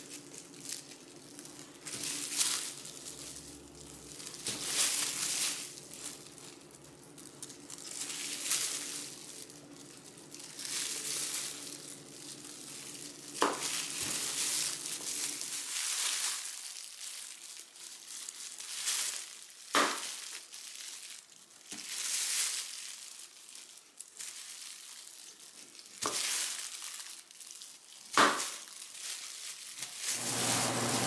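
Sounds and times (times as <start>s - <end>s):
plastic gloves crinkling: 0.0s - 31.0s
knife shaving mango peel: 29.8s - 31.0s.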